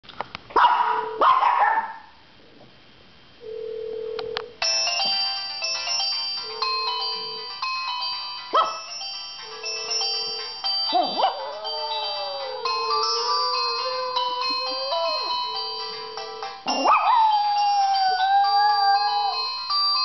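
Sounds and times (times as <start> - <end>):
cell phone ringtone: 3.4 - 20.0
small dog howling: 10.9 - 15.6, 16.7 - 19.6.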